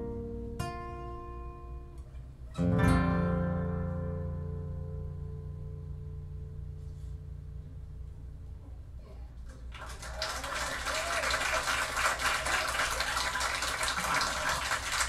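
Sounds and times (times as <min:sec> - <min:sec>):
audience applause: 0:09.7 - 0:15.0.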